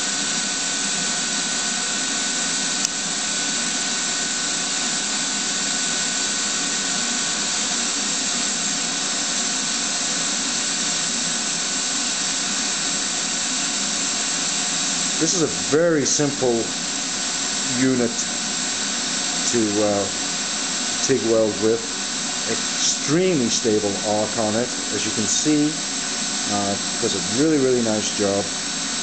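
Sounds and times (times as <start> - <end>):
welding arc hissing: 0.0 - 29.0.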